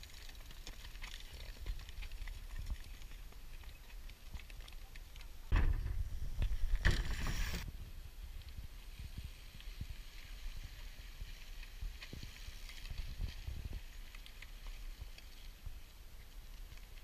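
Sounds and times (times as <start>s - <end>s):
tyres rolling over dirt: 0.0s - 7.7s
bike jolting over bumps: 5.4s - 7.6s
wind rumble on microphone: 5.4s - 17.0s.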